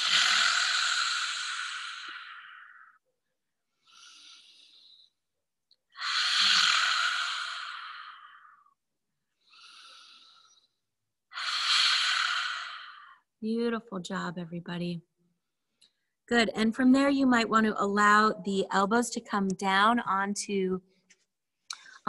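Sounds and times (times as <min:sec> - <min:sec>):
woman forcefully exhaling: 0:06.0 - 0:08.6.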